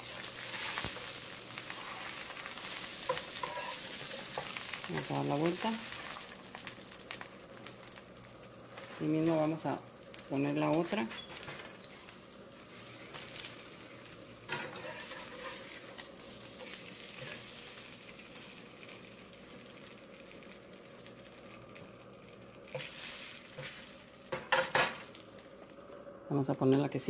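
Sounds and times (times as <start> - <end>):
tortillas sizzling in a pan: 0.0 - 26.8
metal spatula scraping a pan: 0.2 - 4.6, 14.5 - 16.0.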